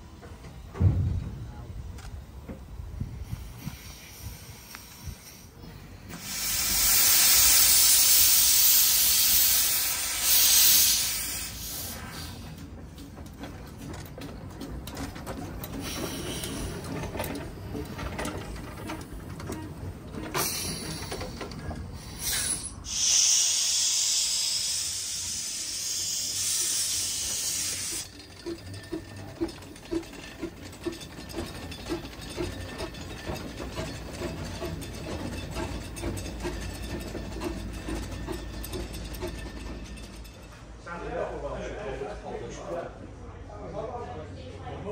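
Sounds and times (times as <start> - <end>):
steam locomotive hissing: 2.6 - 13.0, 15.4 - 39.9.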